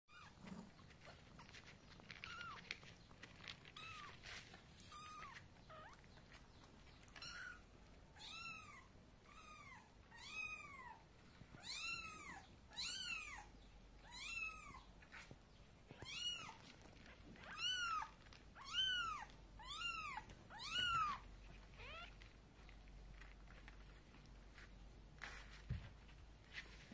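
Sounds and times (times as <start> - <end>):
kittens meowing: 4.8 - 6.1, 7.0 - 14.9, 17.4 - 22.3.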